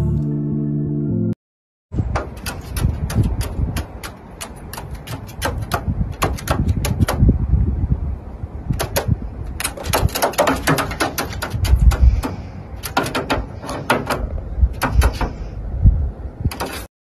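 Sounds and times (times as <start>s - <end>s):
crow beak knocking on nut: 2.2s - 7.2s, 8.8s - 15.4s
low rumble: 14.2s - 16.5s.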